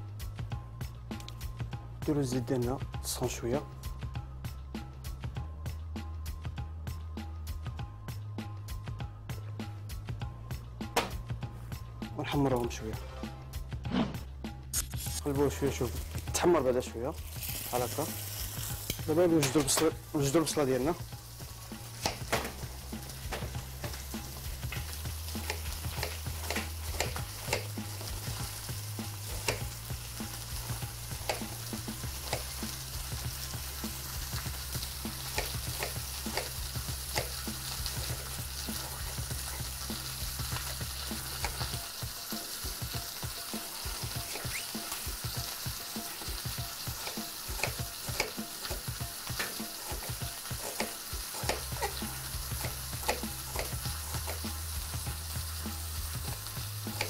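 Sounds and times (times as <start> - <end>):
meat sizzling in hot oil: 14.8 - 57.0.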